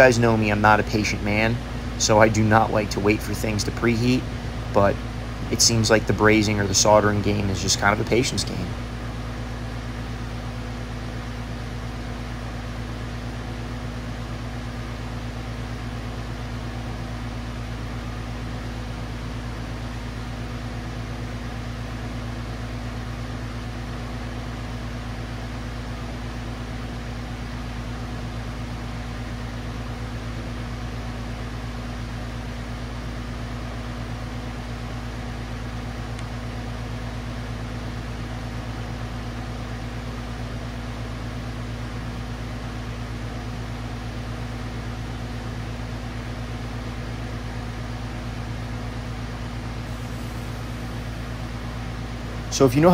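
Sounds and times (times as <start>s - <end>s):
low hum: 0.0s - 52.9s
gas torch flame hissing: 49.8s - 51.7s.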